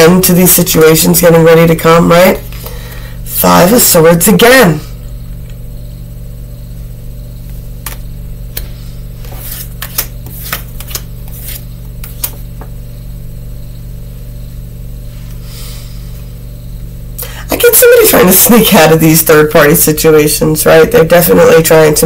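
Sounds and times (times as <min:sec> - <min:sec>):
low electrical hum: 0:00.0 - 0:22.0
cards clicking and tapping: 0:09.3 - 0:12.7.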